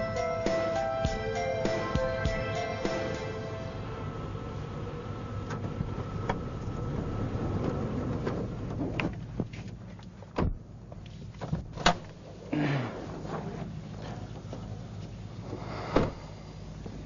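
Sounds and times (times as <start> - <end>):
car engine idling: 0.0 - 11.1.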